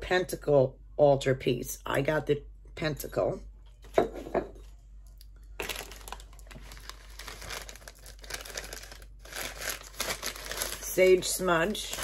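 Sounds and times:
paper packaging crinkling: 0:05.6 - 0:12.0.

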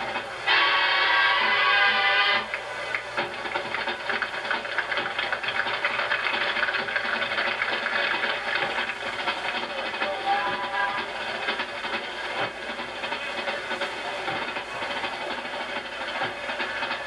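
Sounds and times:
rapid snare drum cadence: 0:00.0 - 0:17.0.

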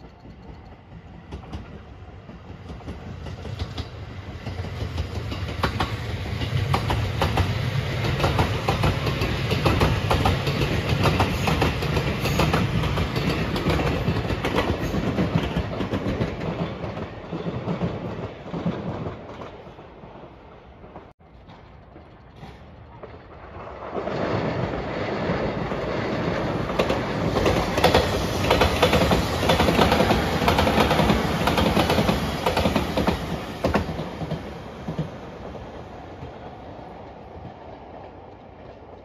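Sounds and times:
electric train passing: 0:00.0 - 0:39.0
wheels clacking over rail joints: 0:21.0 - 0:35.2.

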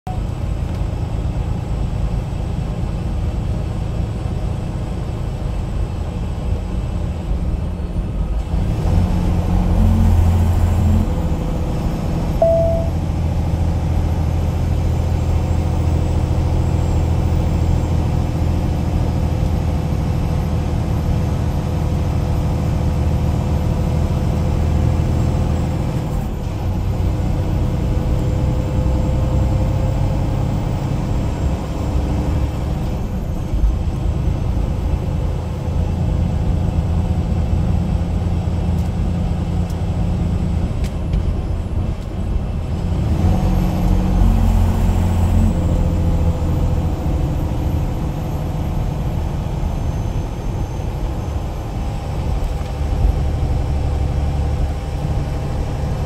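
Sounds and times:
car engine and road noise: 0:00.1 - 0:56.0
high-pitched beep: 0:12.4 - 0:13.1.

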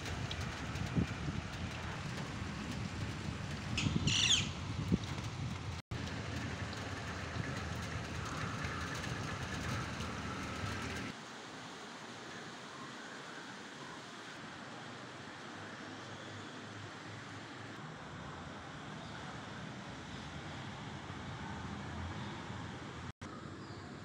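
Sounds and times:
wind buffeting microphone: 0:00.0 - 0:11.1
wind and rain hiss: 0:00.0 - 0:22.2
bird calling: 0:03.7 - 0:04.6.

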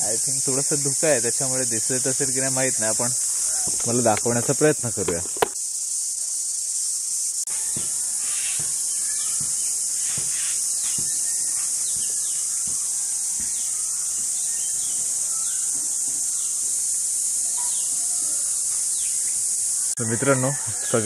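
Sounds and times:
shrill insect drone: 0:00.0 - 0:21.0
birds chirping falling calls: 0:01.5 - 0:05.5, 0:07.6 - 0:16.8.

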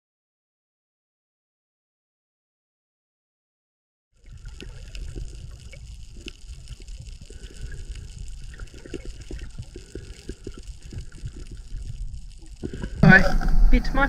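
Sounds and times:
muffled underwater water sloshing: 0:04.2 - 0:14.0.

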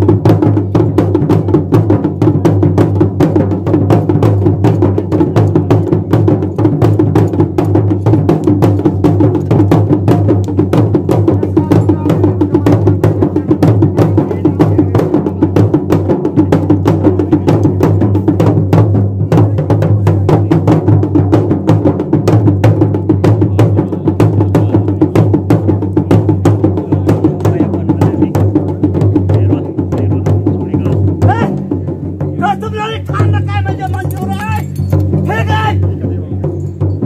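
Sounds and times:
fast drumming with clicking strokes: 0:00.0 - 0:37.0
person's voice: 0:32.4 - 0:36.4.

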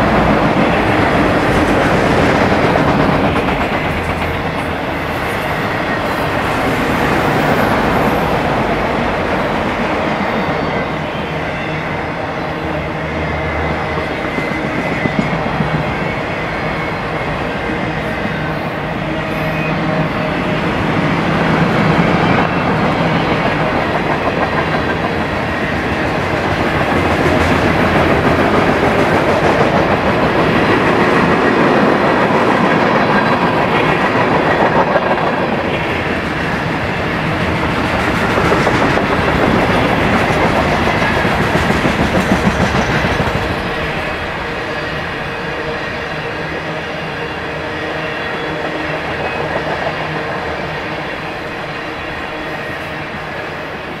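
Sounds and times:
steel wheels clicking on rail: 0:00.0 - 0:08.3, 0:21.1 - 0:44.5
freight train rolling past: 0:00.0 - 0:54.0.

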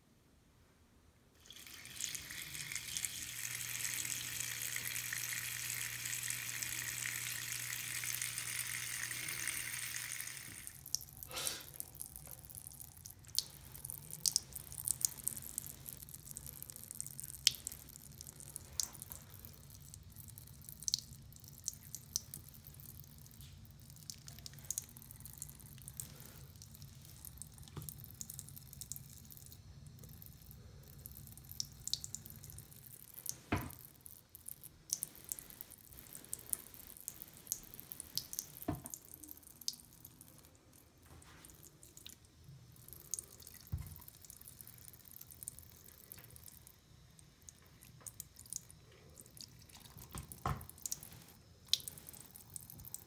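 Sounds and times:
water running into sink: 0:01.4 - 0:12.5.

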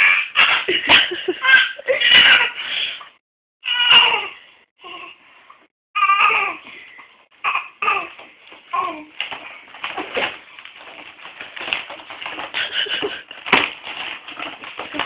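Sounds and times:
baby babbling: 0:06.0 - 0:06.6, 0:07.4 - 0:09.1.

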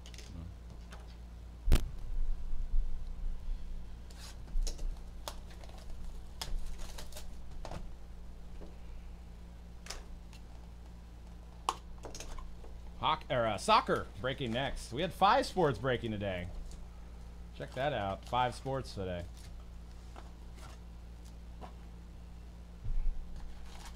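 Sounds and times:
plastic wrap crackling and rustling: 0:04.1 - 0:07.7, 0:23.4 - 0:23.9.

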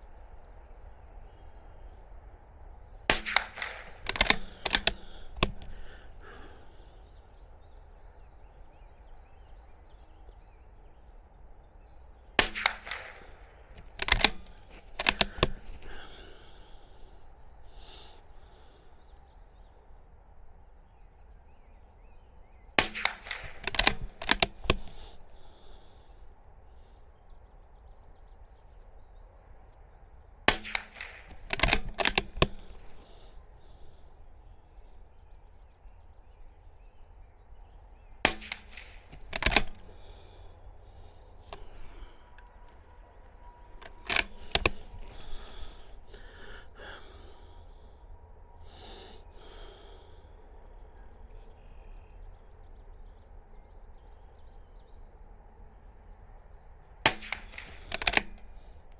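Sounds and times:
suppressed rifle shots: 0:03.0 - 0:07.0, 0:12.4 - 0:18.7, 0:22.8 - 0:26.0, 0:30.5 - 0:34.0, 0:38.2 - 0:47.1, 0:57.0 - 0:58.8
rifle bolt clicks: 0:03.1 - 0:07.0, 0:12.4 - 0:18.2, 0:22.8 - 0:25.9, 0:30.5 - 0:34.0, 0:38.2 - 0:47.3, 0:57.1 - 0:58.9.

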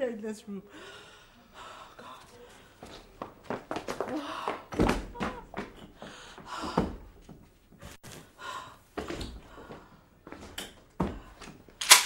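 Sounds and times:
woman breathing and gasping: 0:00.7 - 0:02.9, 0:04.0 - 0:04.7, 0:05.8 - 0:07.1, 0:07.8 - 0:10.1.

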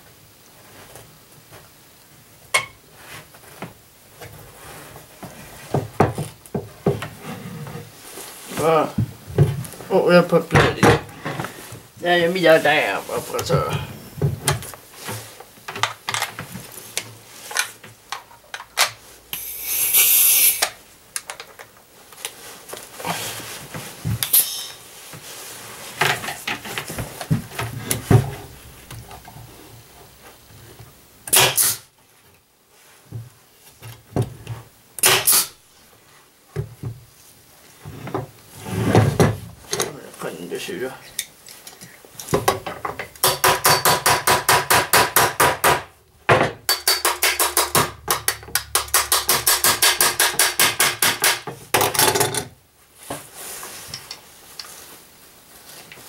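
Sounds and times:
tools clattering on a work table: 0:13.4 - 0:16.6, 0:26.0 - 0:28.5, 0:45.8 - 0:52.6
short hiss: 0:19.0 - 0:20.9, 0:24.2 - 0:25.1, 0:31.3 - 0:31.9, 0:35.0 - 0:35.6.

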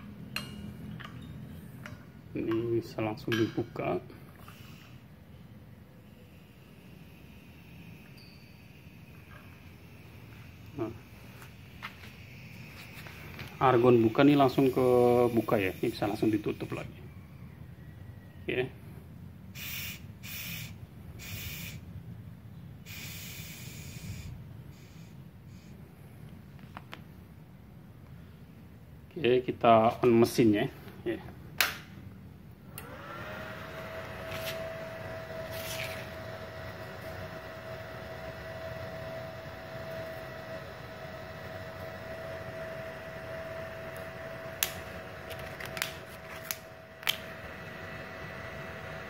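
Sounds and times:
gas hissing from torch nozzle: 0:06.0 - 0:16.8, 0:19.6 - 0:21.8, 0:22.8 - 0:25.6
welding machine fan humming: 0:06.0 - 0:16.9, 0:19.5 - 0:21.9, 0:22.8 - 0:25.8, 0:32.5 - 0:49.0.

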